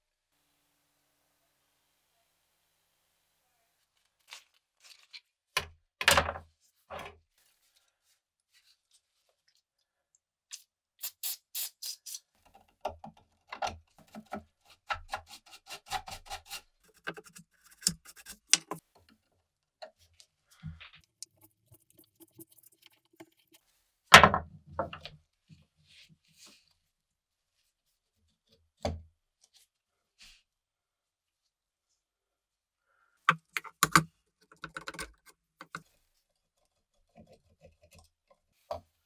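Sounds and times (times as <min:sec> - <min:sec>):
metal clicks and taps: 0:33.3 - 0:35.8.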